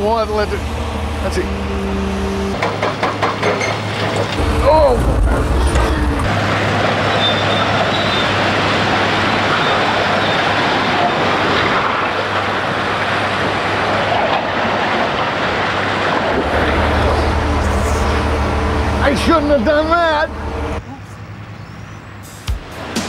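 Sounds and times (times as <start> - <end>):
loud steady rushing noise: 0.0 - 20.8, 22.2 - 23.0
deep rumble: 4.3 - 7.0, 16.2 - 20.8.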